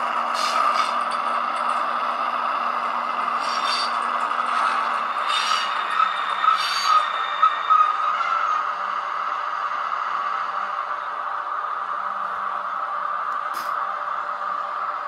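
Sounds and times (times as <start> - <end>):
wheels scraping and rattling on track: 0.0 - 9.1
short high squeals: 3.4 - 8.8.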